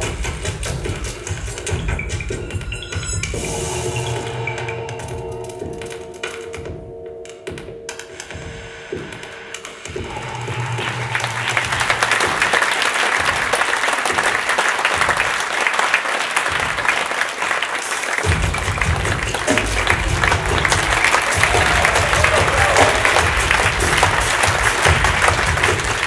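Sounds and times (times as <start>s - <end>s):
audience applause: 10.0s - 26.0s.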